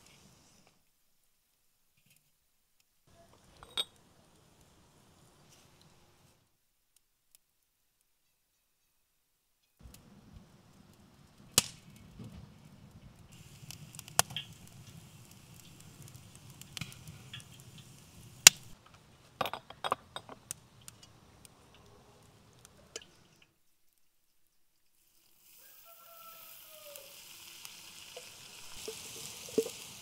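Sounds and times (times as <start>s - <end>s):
soft steady hiss: 0.0s - 30.0s
metal cookware and utensils clinking: 3.5s - 4.0s.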